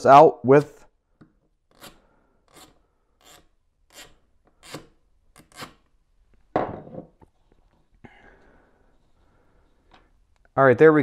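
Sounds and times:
screw scraping in wood: 0:01.7 - 0:05.9.

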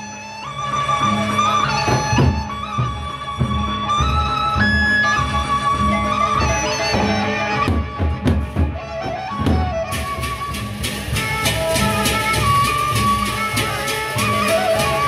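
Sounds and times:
barrel drums beating: 0:06.9 - 0:15.0
hand cymbals clashing: 0:09.9 - 0:15.0.

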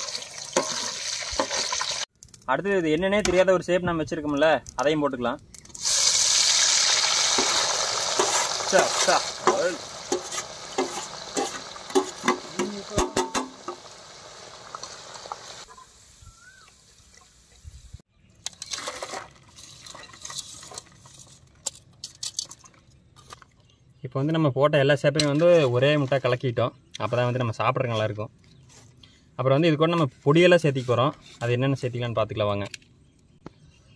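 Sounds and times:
potato sizzling in hot oil: 0:00.0 - 0:02.1, 0:05.7 - 0:17.4
wire skimmer scraping a pan: 0:07.2 - 0:13.5, 0:18.5 - 0:22.6.

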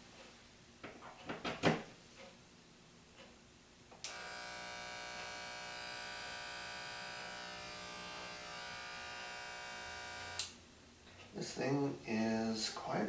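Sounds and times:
hair clipper switch click: 0:04.0 - 0:04.6, 0:10.2 - 0:10.6
electric hair clipper buzzing: 0:04.0 - 0:10.6.

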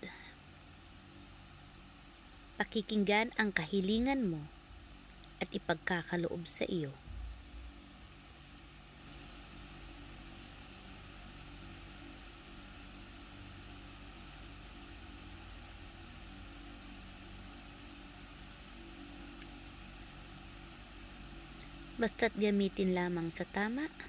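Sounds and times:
low machine hum with hiss: 0:00.0 - 0:24.0.

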